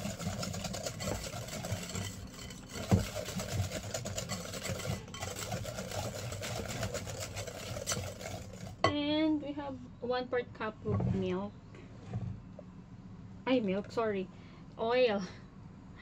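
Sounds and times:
whisk clicking against glass bowl: 0:00.0 - 0:08.7
whisk knock: 0:00.0 - 0:08.8.

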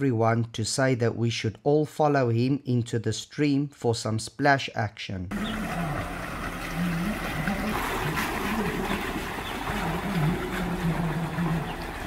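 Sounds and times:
tyres splashing through water: 0:05.3 - 0:12.0.

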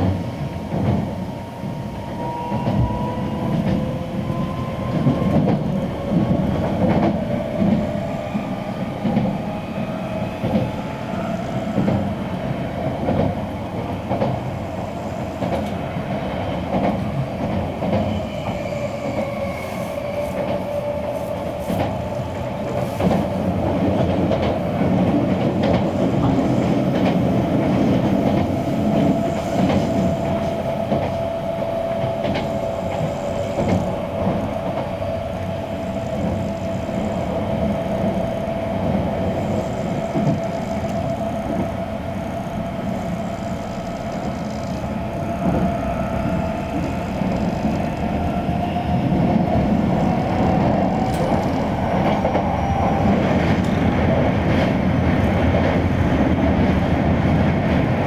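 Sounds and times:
wheels rumbling on rail: 0:00.0 - 0:58.0
train motor whine: 0:26.0 - 0:54.2.

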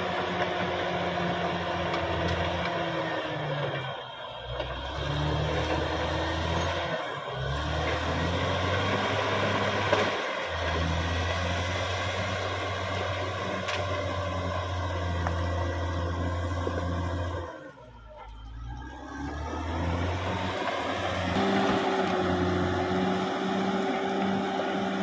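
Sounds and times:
bulldozer diesel engine running: 0:00.0 - 0:25.0.

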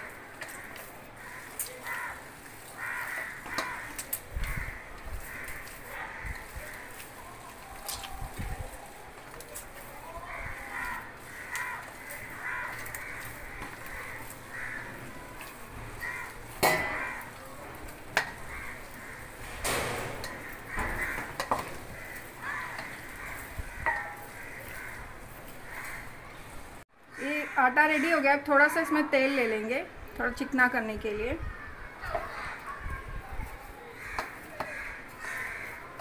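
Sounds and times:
hands kneading dough: 0:00.0 - 0:19.5.

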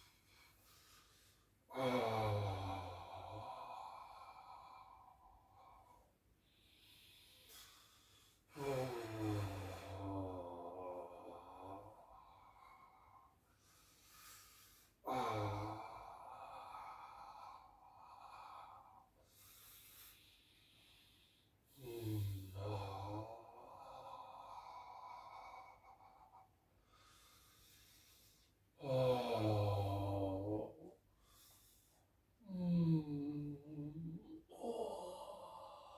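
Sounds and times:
soft breathing in: 0:02.4 - 0:10.3, 0:11.3 - 0:28.8, 0:30.8 - 0:33.2.

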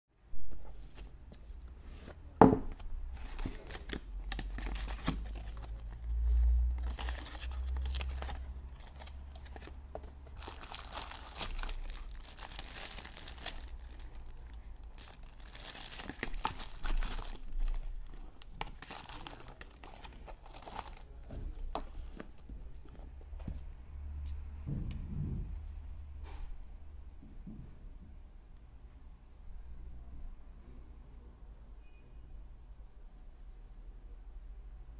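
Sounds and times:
cardboard and plastic crinkling: 0:00.5 - 0:23.7.

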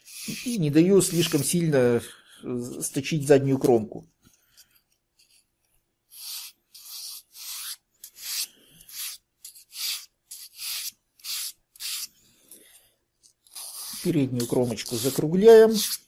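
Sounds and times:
sandpaper rubbing on foam: 0:00.0 - 0:01.6, 0:06.1 - 0:12.1, 0:13.5 - 0:16.0.

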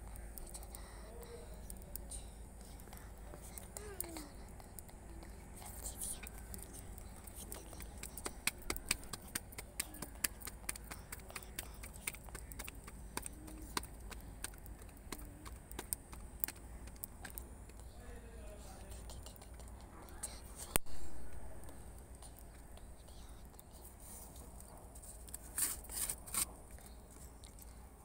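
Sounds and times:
hands patting dough: 0:06.2 - 0:18.0.

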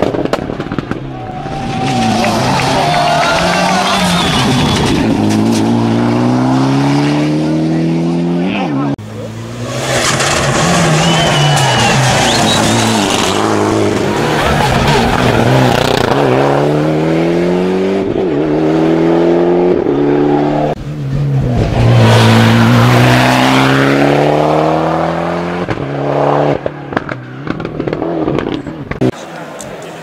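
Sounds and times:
rally car engine revving past: 0:09.2 - 0:29.1.

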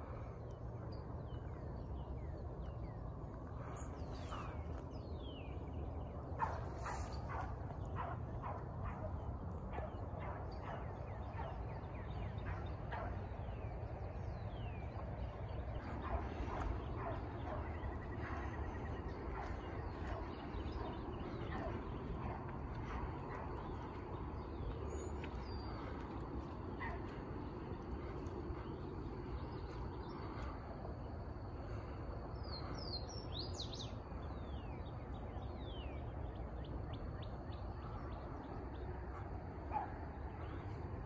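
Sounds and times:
steady low rumble: 0:00.0 - 0:41.0
hounds yelping barks: 0:06.3 - 0:13.8, 0:15.6 - 0:29.2, 0:39.1 - 0:41.0.

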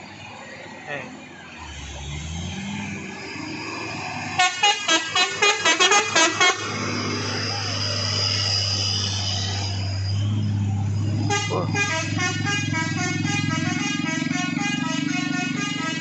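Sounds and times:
diesel truck engine passing: 0:00.0 - 0:16.0
truck horn blasts in a tune: 0:04.4 - 0:06.8, 0:11.2 - 0:16.0.

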